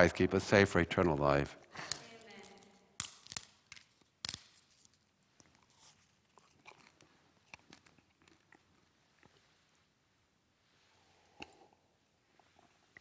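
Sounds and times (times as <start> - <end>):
chewing crunches and clicks: 6.3 - 9.4.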